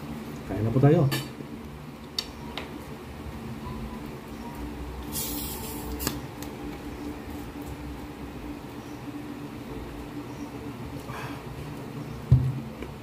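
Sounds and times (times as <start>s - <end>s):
faint hum: 0.0s - 13.0s
bottle fizzing hiss: 5.1s - 6.2s.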